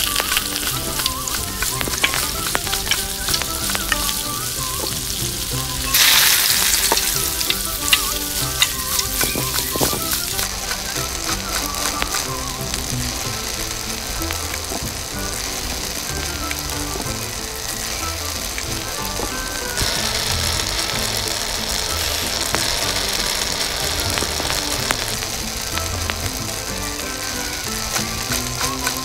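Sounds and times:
background music: 0.0s - 29.0s
food sizzling in a pan: 0.0s - 29.0s
utensils scraping a pan: 4.8s - 10.4s.

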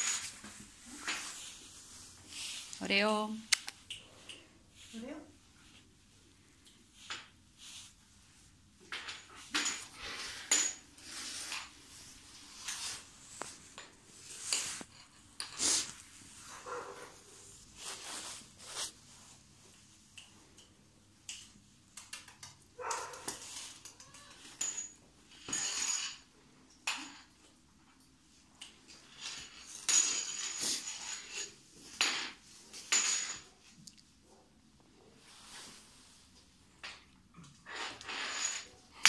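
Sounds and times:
leash dragging and rattling: 22.8s - 23.8s
dog claws scuffing on tiles: 22.8s - 24.0s.

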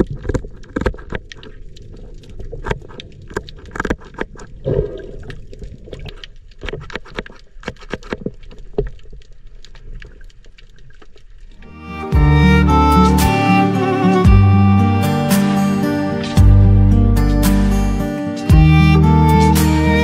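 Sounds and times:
shears clicking underwater: 0.0s - 11.6s.

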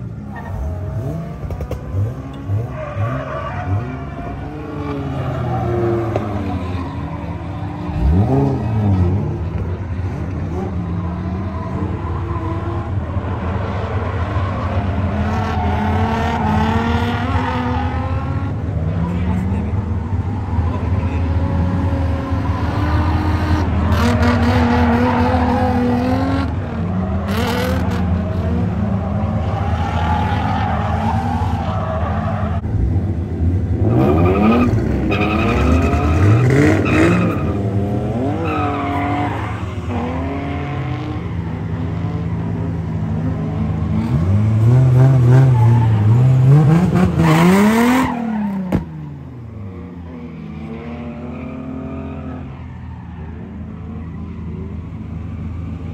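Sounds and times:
car engine revving hard: 43.9s - 48.5s.

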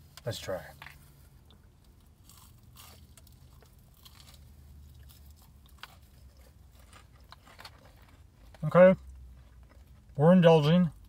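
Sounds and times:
person chewing crunchy food: 1.4s - 10.1s.

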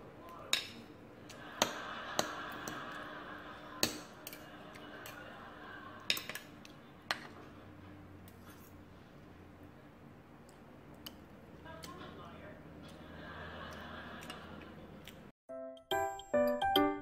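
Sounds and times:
cutlery clinking on a plate: 6.1s - 6.5s.

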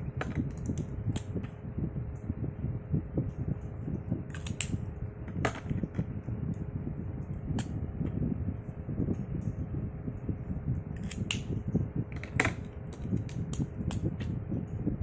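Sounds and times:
steady background hum: 0.0s - 15.0s
plastic pens clicking and tapping: 0.2s - 1.3s.

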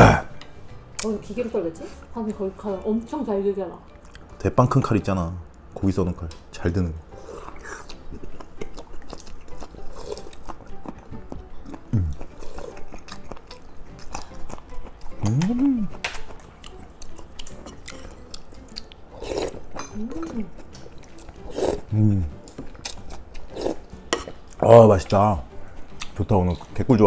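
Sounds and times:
person chewing food: 7.1s - 24.6s, 25.8s - 26.2s
person humming mm: 11.9s - 12.2s, 15.2s - 16.0s, 21.9s - 22.4s.

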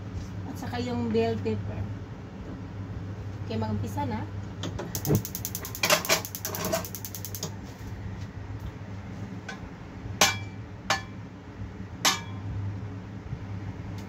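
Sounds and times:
steady low hum: 5.0s - 10.6s.

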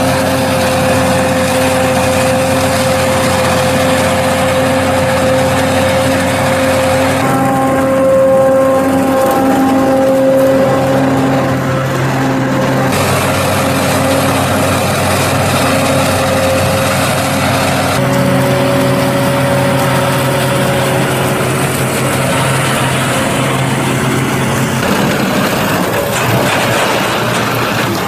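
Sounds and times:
forage harvester engine: 0.0s - 28.0s
tractor driving by: 0.0s - 28.0s.

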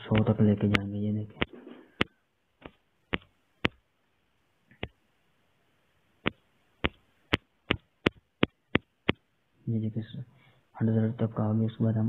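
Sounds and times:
taps on a touchscreen: 0.1s - 3.8s, 6.2s - 9.3s.

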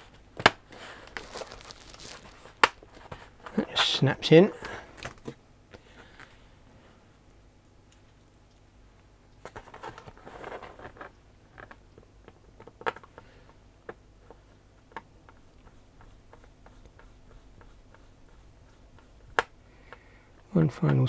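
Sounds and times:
soft rustling handling: 0.8s - 5.4s.

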